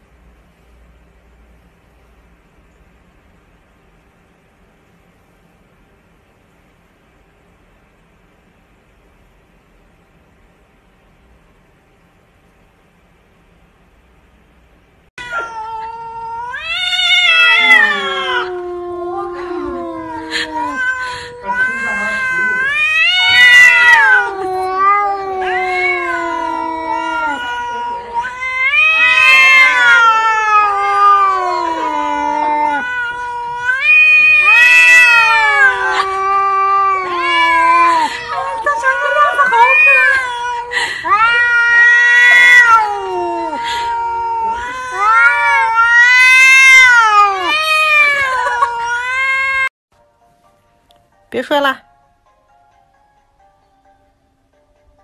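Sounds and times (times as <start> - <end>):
cat yowling: 15.2 - 49.7.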